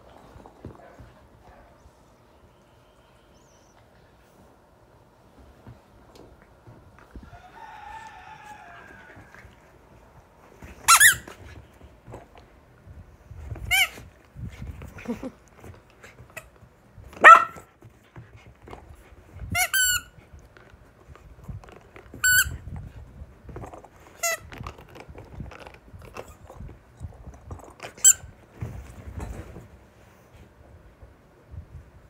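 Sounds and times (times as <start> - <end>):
rubber squeaky toy squeaking: 10.9 - 11.4, 13.7 - 14.0, 19.5 - 20.1, 22.2 - 22.6.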